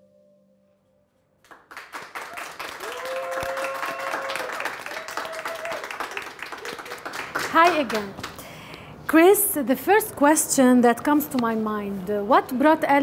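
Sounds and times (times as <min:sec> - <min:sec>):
audience applause: 0:01.5 - 0:08.4.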